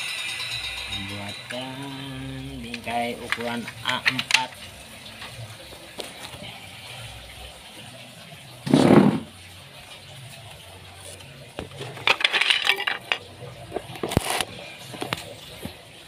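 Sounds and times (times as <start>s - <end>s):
wooden strips clinking: 0.0s - 4.6s, 11.6s - 14.5s.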